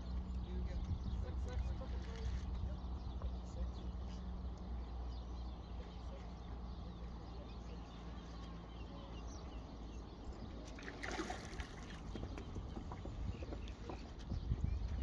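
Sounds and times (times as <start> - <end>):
water lapping: 10.6 - 14.1
steady low rumble: 11.4 - 15.0.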